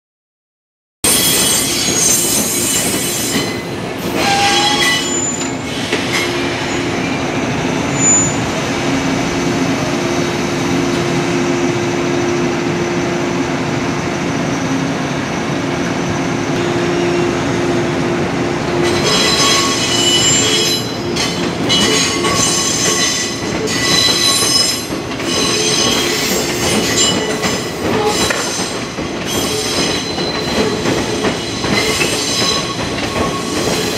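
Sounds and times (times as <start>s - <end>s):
train wheels squealing: 1.1s - 8.5s, 18.8s - 33.9s.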